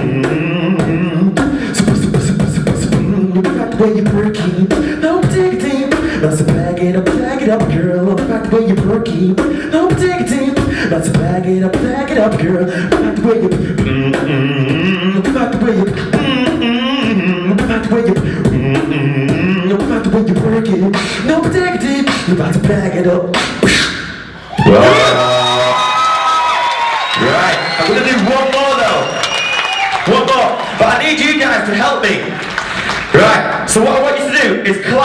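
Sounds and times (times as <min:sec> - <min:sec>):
beatboxing into a microphone: 0:00.0 - 0:25.9
whistle-like vocal tones: 0:23.4 - 0:26.0, 0:27.0 - 0:30.0
rising pitched vocal sound: 0:24.4 - 0:26.1.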